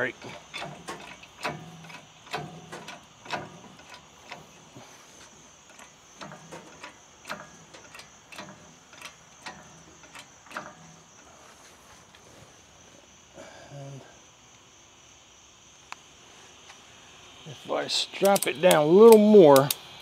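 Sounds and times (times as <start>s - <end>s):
metallic clicks and clunks: 0.0s - 11.3s, 18.2s - 19.8s
insects trilling: 0.0s - 20.0s.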